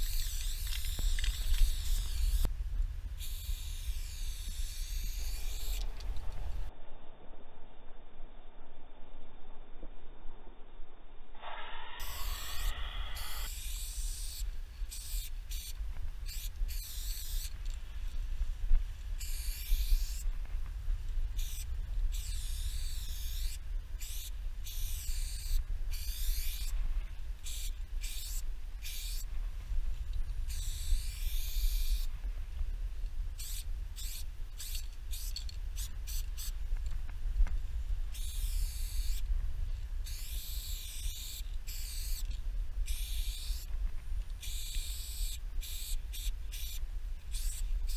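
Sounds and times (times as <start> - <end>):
spray can hissing: 0.0 - 2.5, 3.2 - 5.8, 11.8 - 17.6, 19.2 - 20.3, 21.4 - 26.7, 27.4 - 29.3, 30.5 - 32.1, 33.4 - 36.6, 38.2 - 39.2, 40.0 - 42.3, 42.9 - 43.7, 44.4 - 47.9
steady low rumble: 0.0 - 47.9.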